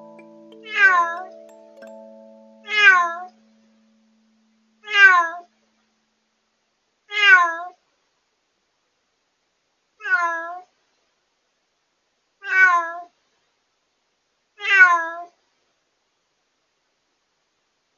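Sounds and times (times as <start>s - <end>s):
cat meowing loudly: 4.8s - 5.5s, 7.1s - 7.8s, 10.0s - 10.6s, 12.4s - 13.1s, 14.6s - 15.3s.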